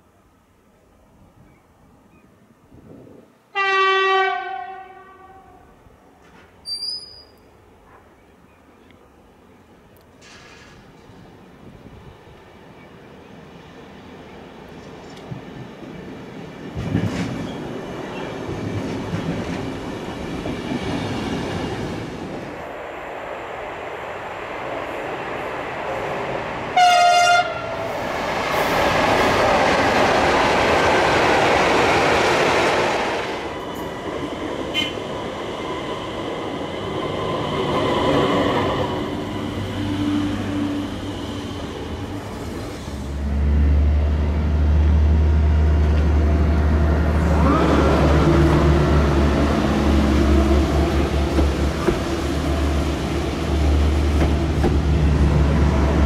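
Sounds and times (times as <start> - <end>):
train wheel and rail noise: 0.0 - 56.0
train horn blast: 3.5 - 5.8, 26.8 - 27.8, 34.7 - 35.0
deep locomotive hum: 14.8 - 56.0.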